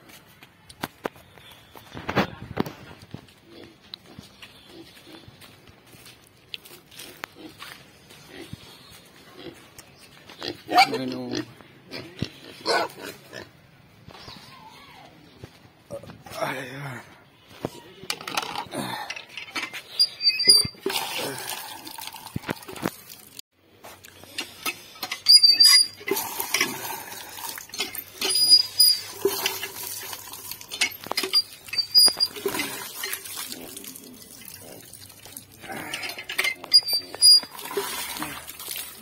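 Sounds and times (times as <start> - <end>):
hand pump squeaking: 18.1 - 21.2, 24.4 - 33.4, 35.3 - 38.9
water gushing and splashing: 20.8 - 23.4, 26.0 - 39.0.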